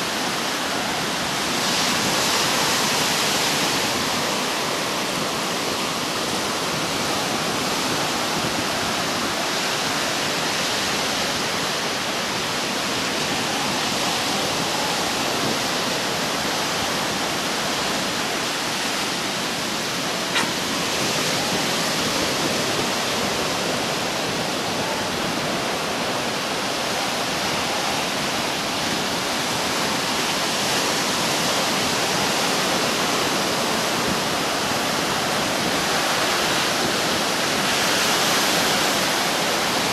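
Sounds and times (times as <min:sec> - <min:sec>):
ocean surf breaking: 0:00.0 - 0:39.9
short click: 0:20.3 - 0:20.6.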